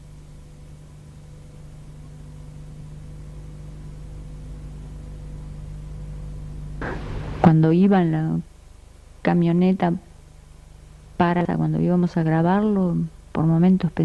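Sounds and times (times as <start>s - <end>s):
low hum: 0.0s - 14.0s
even hiss: 6.6s - 8.5s.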